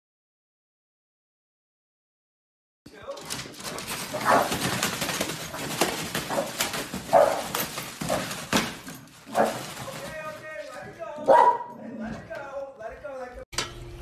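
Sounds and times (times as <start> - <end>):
paper crackling and ripping: 3.3 - 10.9
dog barks: 4.1 - 4.7, 6.3 - 8.2, 9.3 - 9.7, 11.2 - 12.0.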